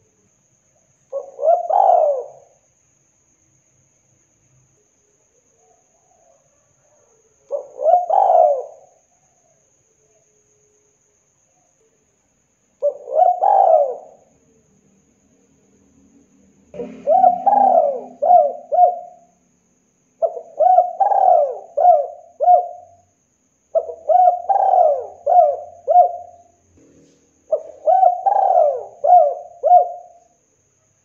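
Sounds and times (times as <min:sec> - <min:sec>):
dove cooing: 0:01.1 - 0:02.6, 0:06.0 - 0:09.0, 0:12.8 - 0:14.3, 0:16.7 - 0:19.4, 0:20.2 - 0:23.0, 0:23.8 - 0:26.5, 0:27.5 - 0:30.3.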